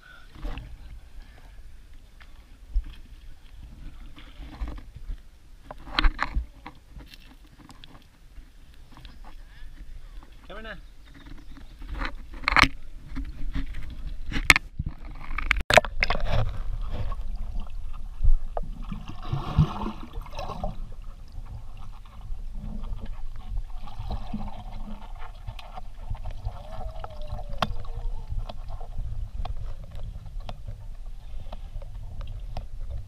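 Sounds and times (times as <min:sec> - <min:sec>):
water splashing from swimming: 0:16.7 - 0:33.0.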